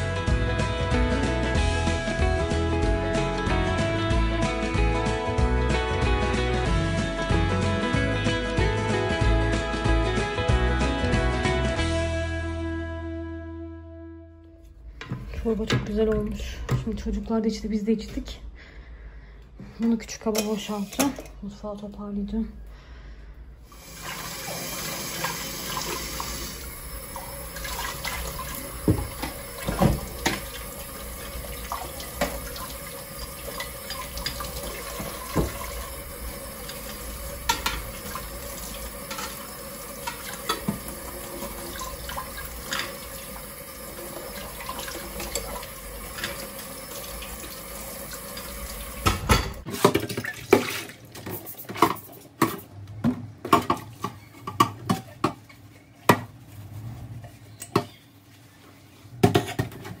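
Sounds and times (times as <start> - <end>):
tap running into sink: 24.0 - 50.8
dishes clinking and knocking: 33.4 - 35.9, 37.4 - 38.3, 38.9 - 41.0, 49.0 - 50.7, 51.8 - 56.3.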